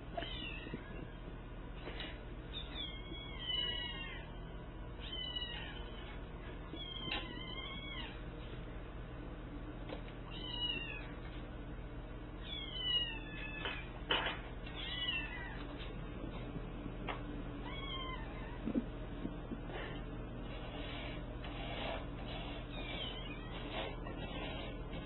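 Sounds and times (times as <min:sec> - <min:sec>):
kittens meowing: 0:02.5 - 0:04.4, 0:05.0 - 0:06.1, 0:06.7 - 0:08.2, 0:12.4 - 0:13.9, 0:17.6 - 0:18.8, 0:22.7 - 0:24.5.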